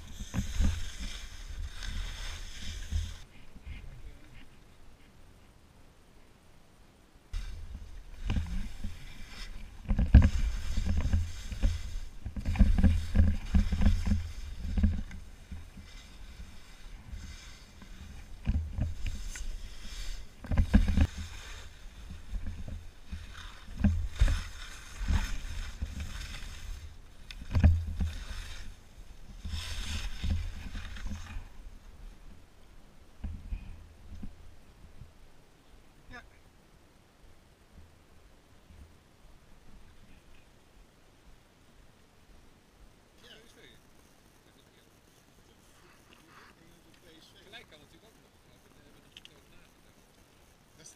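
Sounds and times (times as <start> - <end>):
skis scraping over hard snow: 0.0 - 3.3, 7.4 - 31.8.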